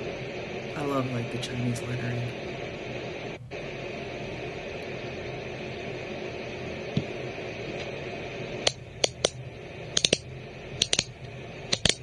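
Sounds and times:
steady hiss: 0.0s - 12.0s
metal fidget toy clicking: 10.0s - 10.2s, 10.8s - 11.1s.

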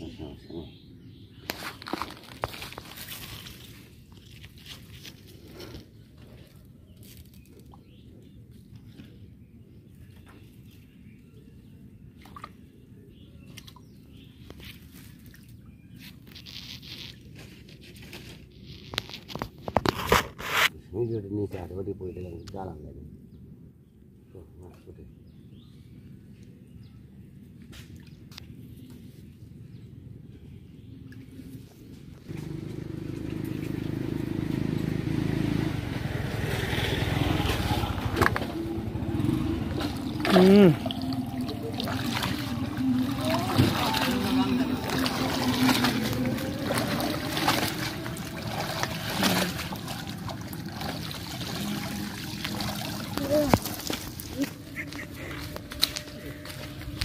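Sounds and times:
net splashing and dripping water: 1.8s - 5.0s, 39.6s - 54.8s
small engine running: 32.3s - 54.6s.

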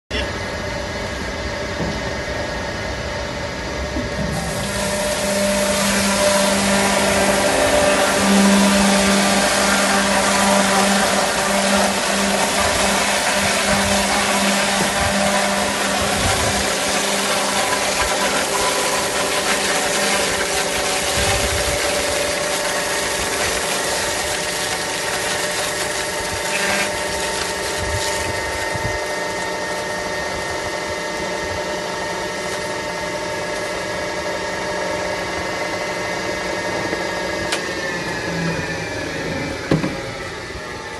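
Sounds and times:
crushing machine grinding: 4.4s - 29.5s.

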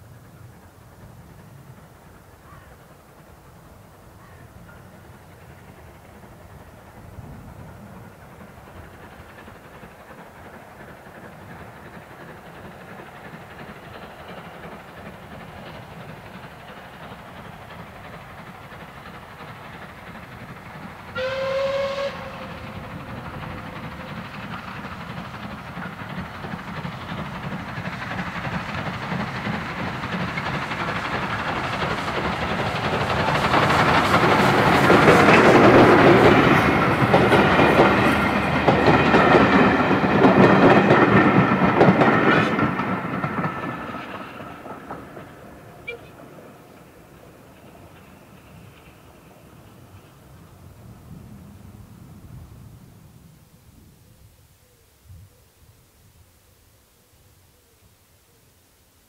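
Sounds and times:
steam locomotive exhaust and rumble: 0.0s - 57.8s
steam whistle blast: 21.2s - 22.6s, 45.8s - 46.2s
wheels clattering over rail joints: 22.4s - 49.5s.

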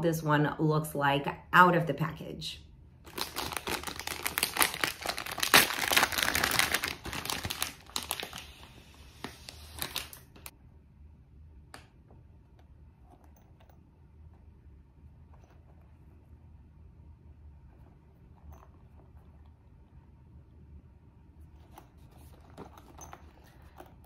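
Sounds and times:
plastic bag crinkling: 3.1s - 10.5s.

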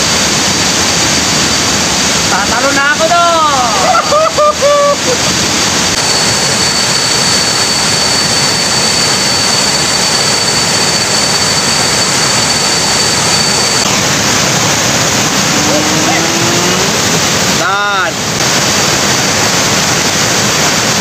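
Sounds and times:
waterfall rushing: 0.0s - 21.0s
thin high tone: 5.9s - 17.2s.

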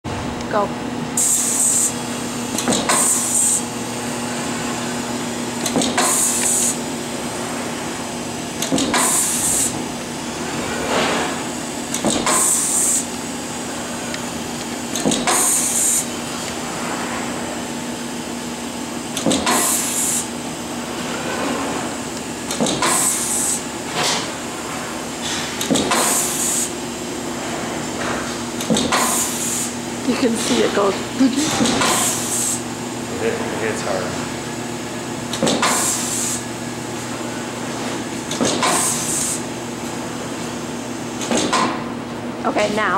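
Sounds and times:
machine motor hum: 0.1s - 42.9s
short pneumatic hiss: 1.2s - 2.0s, 2.9s - 3.6s, 8.9s - 9.7s, 12.2s - 13.1s, 15.2s - 16.1s, 19.4s - 20.3s, 22.8s - 23.6s, 25.9s - 26.7s, 28.9s - 29.8s, 35.5s - 36.4s, 38.6s - 39.4s.

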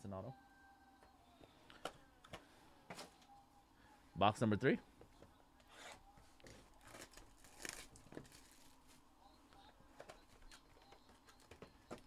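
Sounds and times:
plastic wrap crinkling and tearing: 6.8s - 8.9s.

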